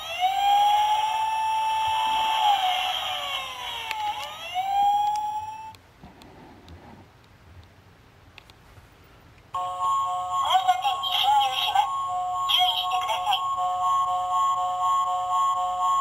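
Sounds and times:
toy electronic tone chord: 9.6 - 16.0
wavering voice-like electronic sound: 10.4 - 13.6.

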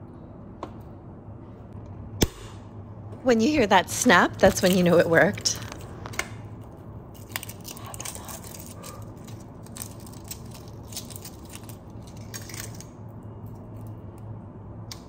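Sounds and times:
low hum: 0.0 - 15.0
eggshells crackling: 7.1 - 12.9.

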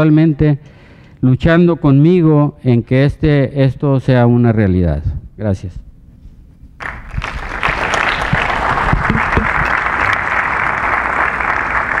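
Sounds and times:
audience applauding: 6.8 - 12.0.

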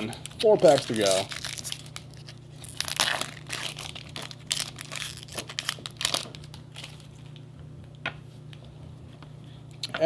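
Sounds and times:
foil wrapper crinkling and tearing: 0.0 - 7.3.

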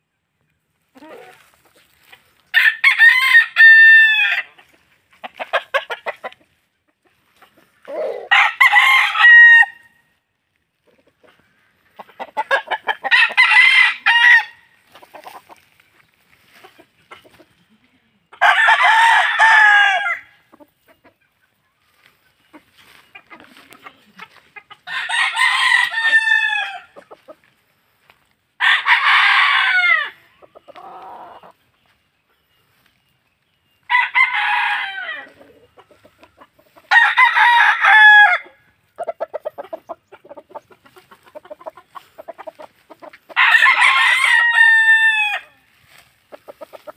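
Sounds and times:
roosters crowing: 0.9 - 6.4, 7.4 - 10.2, 11.5 - 15.6, 18.4 - 20.5, 22.8 - 27.5, 28.6 - 31.6, 33.8 - 46.9.

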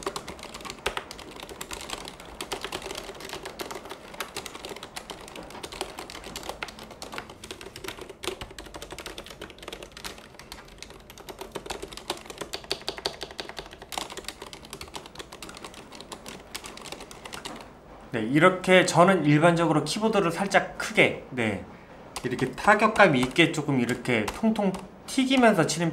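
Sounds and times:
fast typing on keyboard: 0.0 - 17.7, 22.2 - 25.9.

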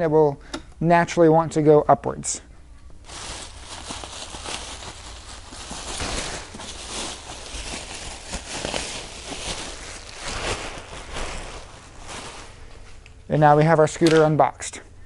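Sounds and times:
bubble wrap crinkling: 3.0 - 13.2.

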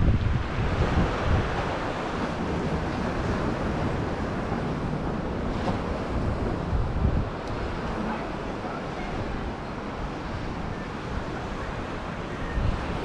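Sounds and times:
surf on a pebble beach: 0.0 - 13.0
wind buffeting microphone: 0.0 - 13.0.

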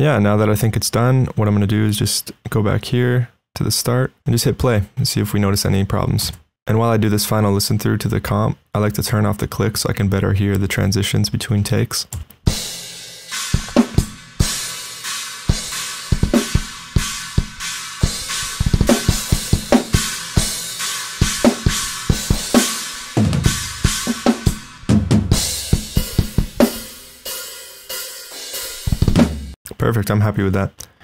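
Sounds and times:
fast bass drum runs: 12.5 - 27.4, 28.2 - 29.6
metal drum kit playing: 12.5 - 29.6.

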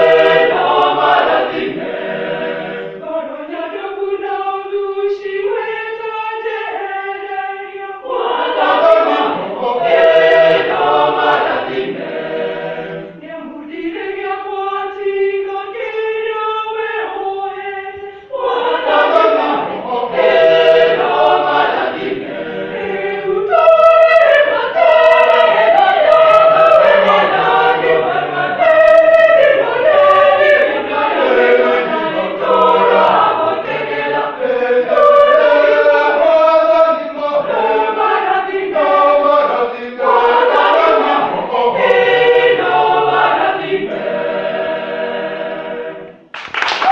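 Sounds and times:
church choir singing in parts: 0.0 - 46.9.

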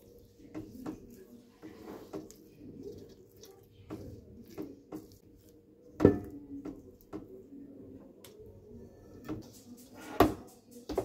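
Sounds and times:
spatula scraping a metal bowl: 0.0 - 5.2.

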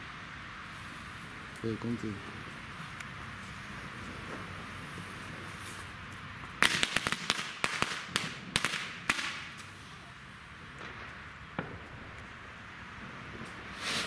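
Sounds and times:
firecracker bangs: 6.6 - 9.6, 10.7 - 12.2, 13.1 - 14.0
lit fuse hissing: 13.7 - 14.0.

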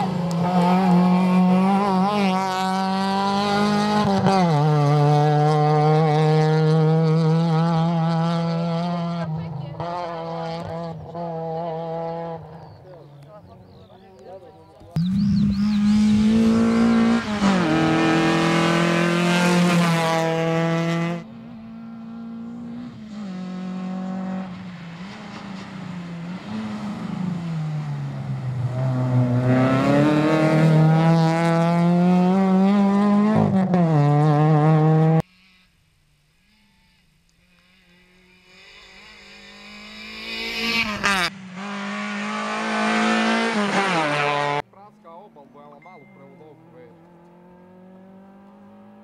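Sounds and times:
rally car engine revving: 0.0 - 13.3, 15.0 - 35.3, 37.5 - 44.6, 46.5 - 49.0.

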